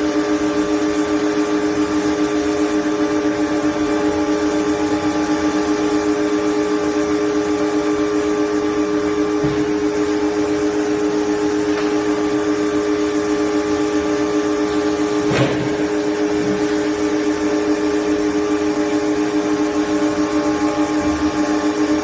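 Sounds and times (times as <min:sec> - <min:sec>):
blow-moulding machine humming: 0:00.0 - 0:22.0
sharp knock: 0:15.3 - 0:15.8.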